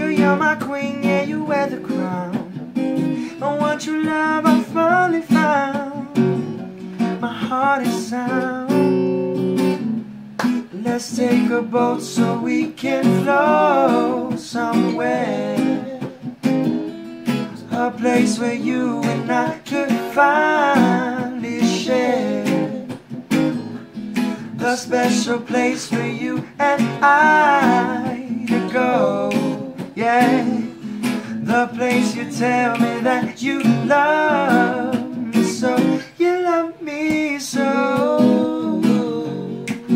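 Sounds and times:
acoustic guitar strumming: 0.0s - 39.9s
person singing: 3.2s - 6.4s, 10.5s - 16.4s, 17.6s - 23.0s, 24.3s - 39.9s.

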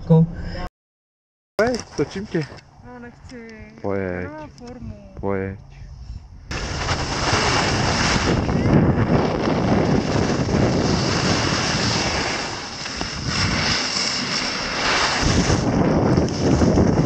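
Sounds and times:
wind buffeting microphone: 2.2s - 17.0s
skis hissing on snow: 6.5s - 8.4s, 10.1s - 15.7s.

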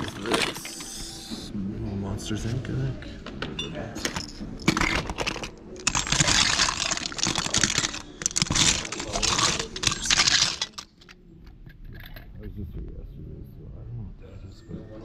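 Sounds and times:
plastic toys clattering: 0.0s - 1.0s, 4.0s - 12.4s.

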